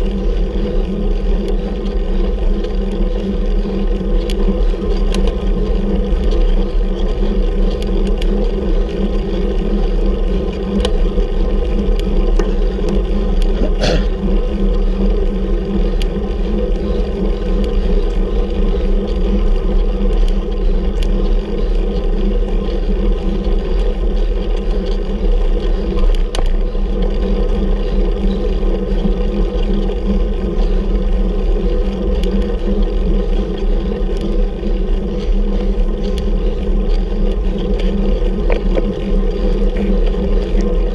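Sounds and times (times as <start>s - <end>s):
wind and road noise: 0.0s - 40.9s
faint clicks: 10.5s - 11.1s.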